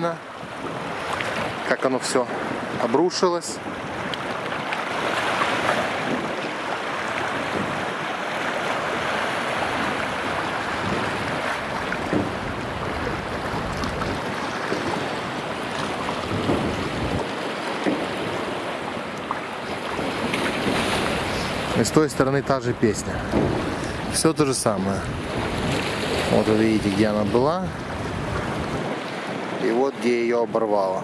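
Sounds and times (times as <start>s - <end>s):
wind buffeting microphone: 0.0s - 30.0s
small waves washing against seawall: 0.0s - 31.0s.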